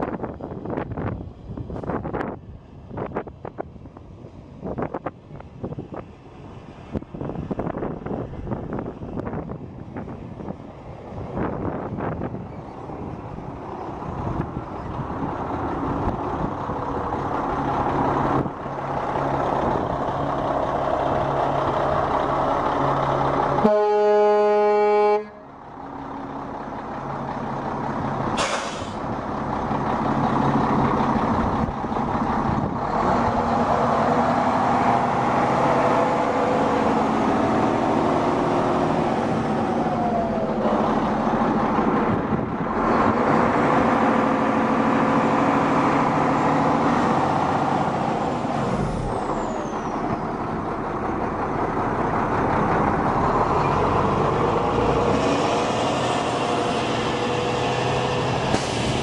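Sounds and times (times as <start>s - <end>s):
diesel engine running: 0.0s - 59.0s
truck horn: 23.6s - 25.6s.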